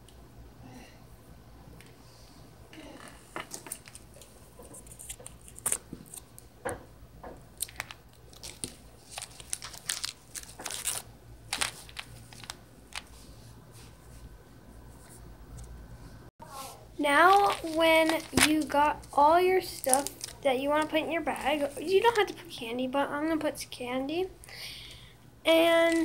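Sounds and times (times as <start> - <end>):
bag and candy wrappers crinkling: 7.6 - 13.1, 17.1 - 22.3, 25.8 - 26.0.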